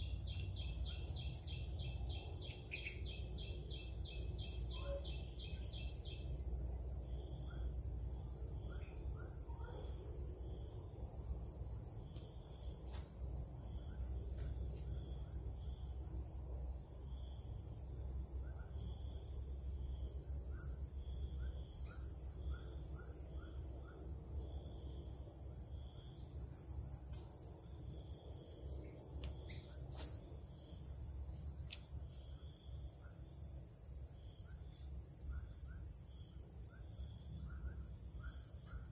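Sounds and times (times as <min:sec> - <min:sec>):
insects chirping and buzzing: 0:00.0 - 0:38.9.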